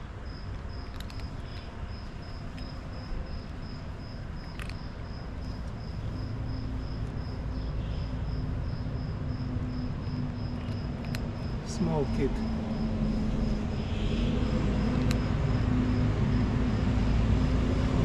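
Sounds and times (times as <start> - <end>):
insect chirping: 0.0 - 18.0
steady low hum: 0.0 - 18.0
low rumble: 12.3 - 18.0.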